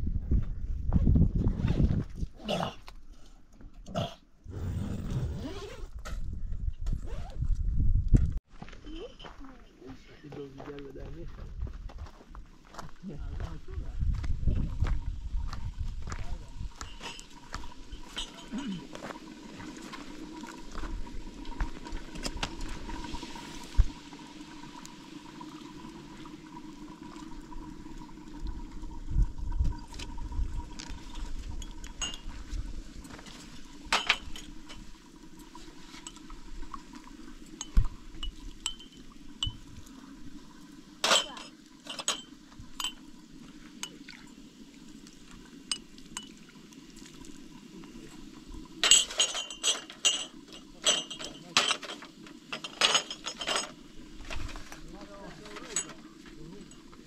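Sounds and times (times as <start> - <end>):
glasses clinking on metal tray: 16.8 - 18.9, 31.6 - 32.3, 33.9 - 34.9, 37.6 - 39.6, 41.0 - 43.0, 48.8 - 53.8, 55.4 - 56.9.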